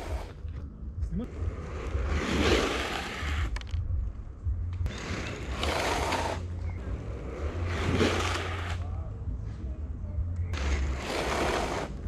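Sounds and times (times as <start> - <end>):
inline skate wheels skidding on asphalt: 0.0 - 0.4, 1.3 - 3.8, 4.8 - 8.9, 10.5 - 12.0
low rumble: 0.0 - 11.8.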